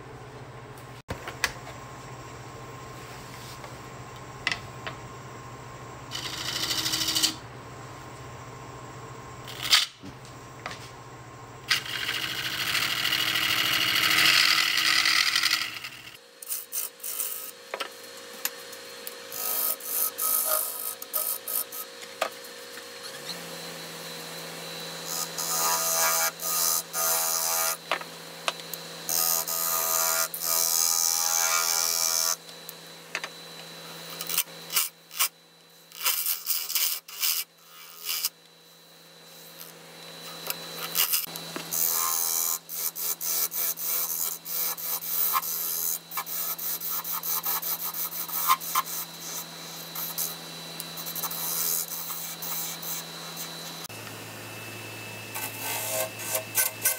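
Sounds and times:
wood lathe humming: 11.7s - 16.2s, 39.4s - 54.0s, 55.3s - 56.9s.

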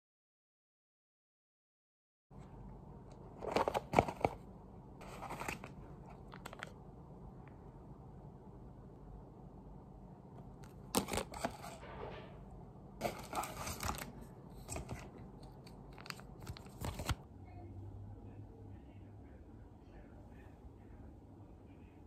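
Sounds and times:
cardboard scraping: 5.0s - 5.8s, 11.0s - 11.9s, 13.0s - 15.1s
plastic packaging crinkling: 5.0s - 6.8s, 13.0s - 17.2s.

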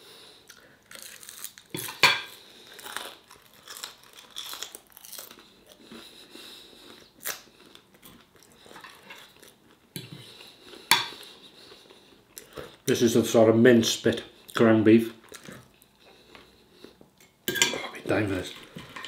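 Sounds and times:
person chewing crunchy food: 0.4s - 12.8s, 15.2s - 17.2s.

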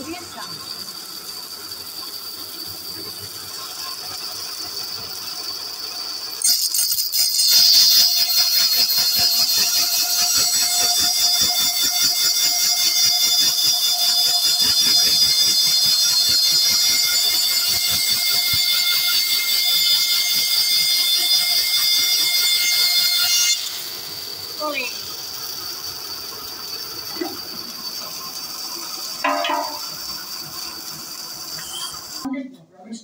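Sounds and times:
bandsaw cutting plank: 6.4s - 32.3s.

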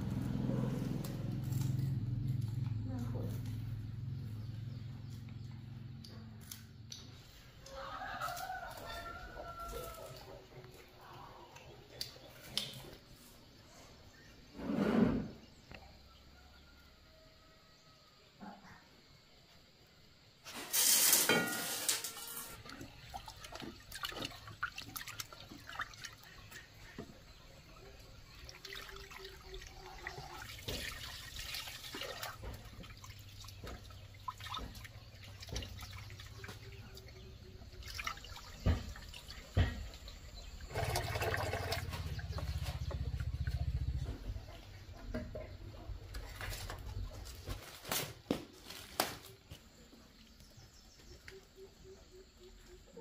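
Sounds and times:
water splashing and running: 20.6s - 43.6s.

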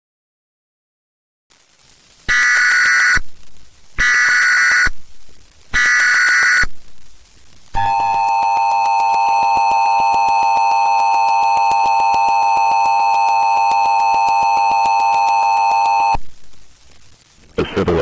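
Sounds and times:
loud two-tone alarm tone: 2.3s - 3.2s, 4.0s - 5.0s, 5.7s - 6.7s, 7.8s - 16.2s.

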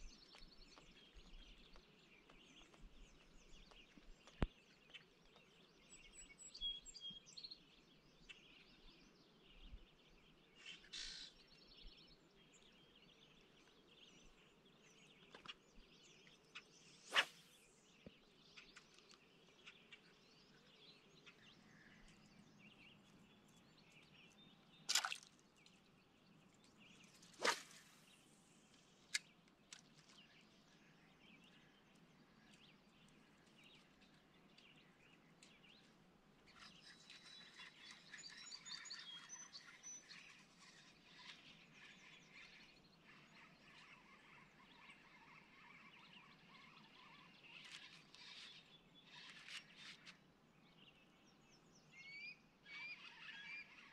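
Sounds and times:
faint bird chirps: 10.6s - 12.6s, 14.2s - 25.0s, 26.4s - 29.3s, 36.5s - 50.2s, 51.0s - 53.9s
sharp clicks or splashes: 24.9s - 25.4s.

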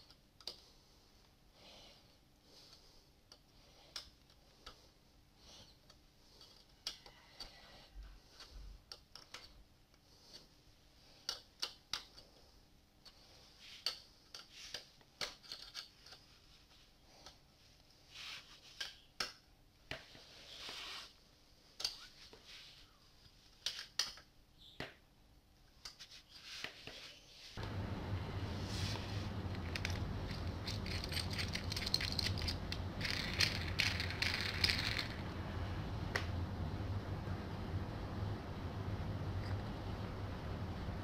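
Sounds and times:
hex key clicking and scraping: 29.4s - 35.3s.

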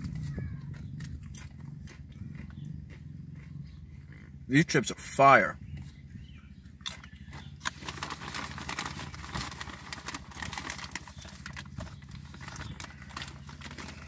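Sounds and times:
potato chip crunching: 6.8s - 14.0s
foil snack bag rustling: 7.6s - 14.0s.

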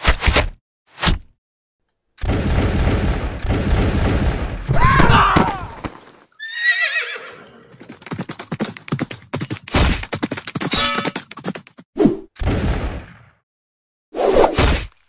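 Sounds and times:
rifle gunfire volley: 2.2s - 4.7s.

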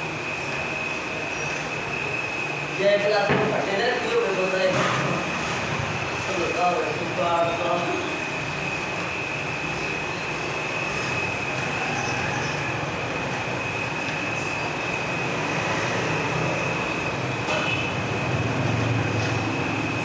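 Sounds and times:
high-pitched whine: 0.0s - 20.0s
machine noise: 0.0s - 20.0s.

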